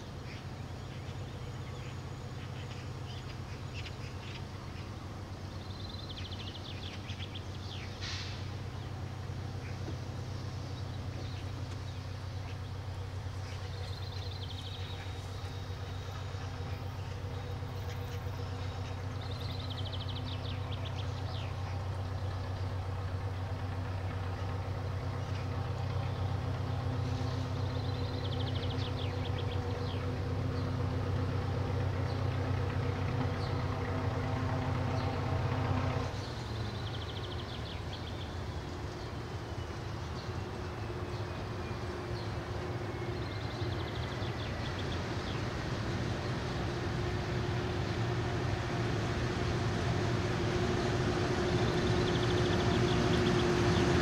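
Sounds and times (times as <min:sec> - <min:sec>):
diesel locomotive engine drumming: 0:00.0 - 0:54.0.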